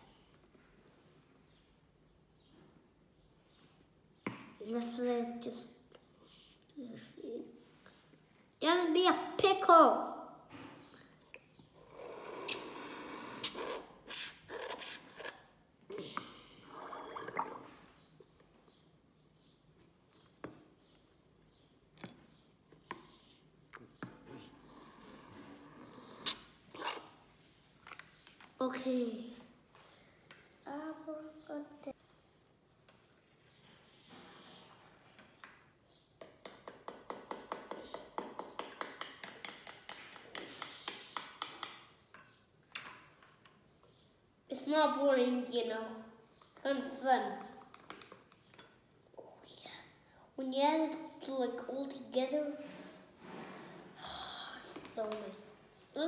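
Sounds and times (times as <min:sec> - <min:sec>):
pipette bulb squelching in liquid: 0:16.8 - 0:17.8.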